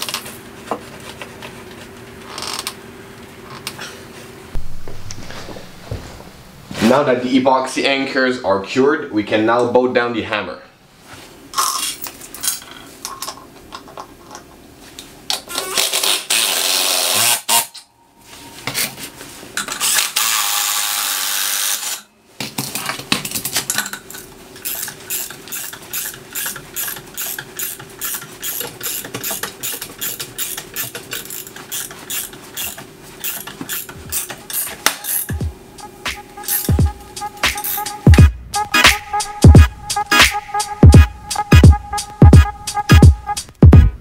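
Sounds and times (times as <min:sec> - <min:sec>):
ratchet wrench clicking: 0:24.6 - 0:35.3.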